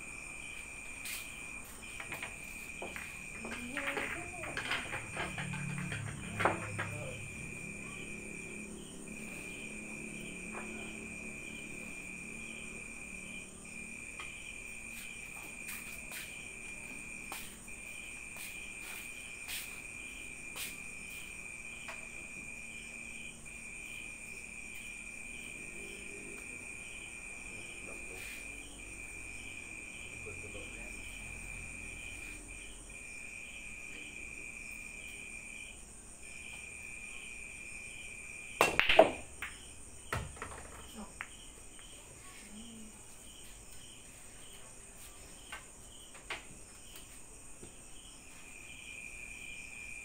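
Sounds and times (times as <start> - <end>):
billiard balls clicking: 2.1 - 7.0, 38.6 - 41.3
billiard rack knock: 38.6 - 40.8.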